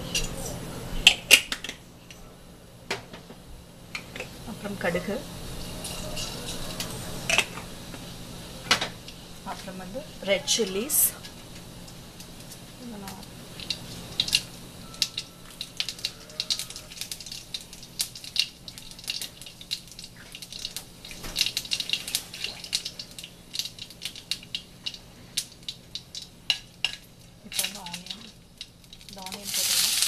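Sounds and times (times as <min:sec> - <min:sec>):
light sizzle: 0:00.0 - 0:30.0
seeds popping in hot oil: 0:10.6 - 0:30.0.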